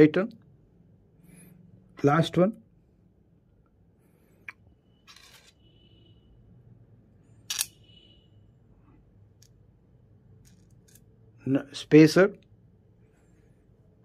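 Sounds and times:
metal fasteners clinking: 7.5s - 7.8s.

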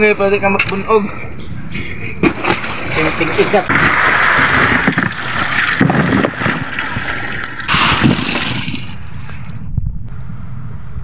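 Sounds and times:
sardines and seawater splashing into box: 2.4s - 9.1s.

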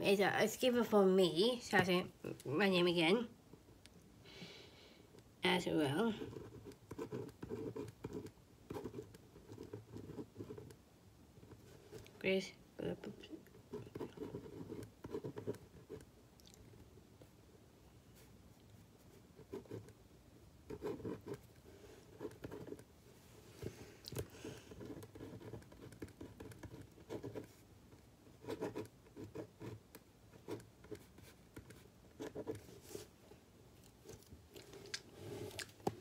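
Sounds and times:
pen scratching on paper: 6.0s - 10.8s, 13.7s - 16.1s, 19.4s - 20.0s, 20.7s - 21.4s, 22.0s - 22.8s, 24.4s - 27.6s, 28.3s - 33.1s.

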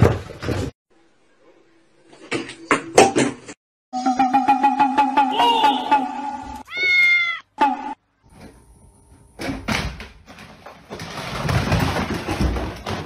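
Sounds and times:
cat meowing: 6.6s - 7.5s
rustling and knocking: 9.4s - 13.0s.

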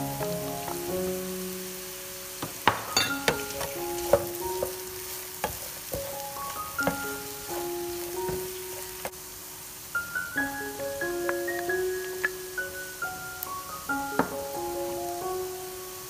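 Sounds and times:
food sizzling in oil: 0.0s - 16.0s
wooden spatula knocking pan: 2.4s - 9.1s, 14.1s - 14.4s
light melodic background tune: 10.0s - 15.9s.

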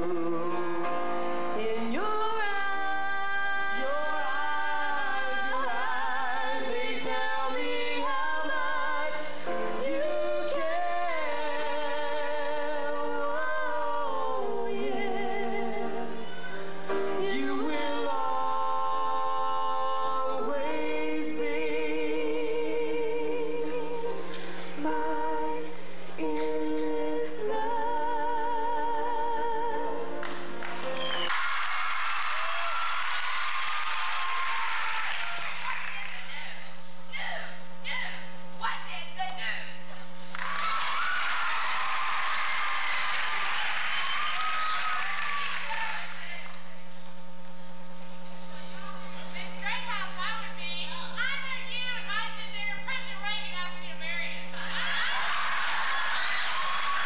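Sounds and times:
woman singing into microphone: 0.0s - 30.2s
grand piano: 0.0s - 32.7s.

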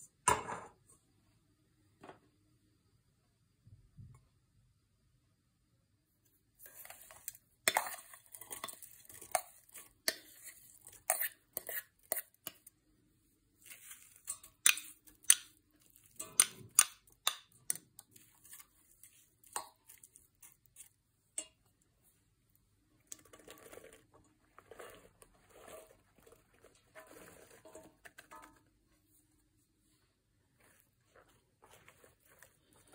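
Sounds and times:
spatula scraping and tapping bowl: 6.6s - 12.8s, 13.6s - 21.8s, 23.0s - 28.8s, 30.6s - 32.9s.

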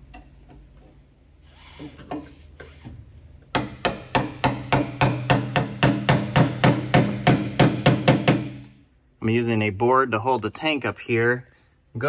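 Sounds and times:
hammer tapping punch on metal: 3.5s - 8.7s.

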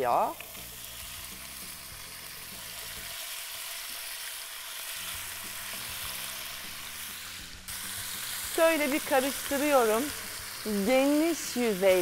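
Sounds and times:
meat sizzling in oil: 0.0s - 12.0s.

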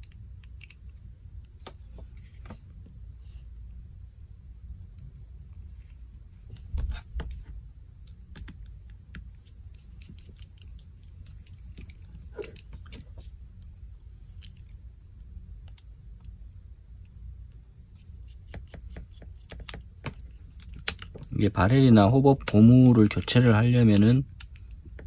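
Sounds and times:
small parts clicking and tapping: 0.0s - 1.8s, 8.0s - 13.7s, 14.3s - 16.4s, 18.2s - 21.4s, 22.3s - 25.0s
low steady hum: 0.0s - 25.0s.

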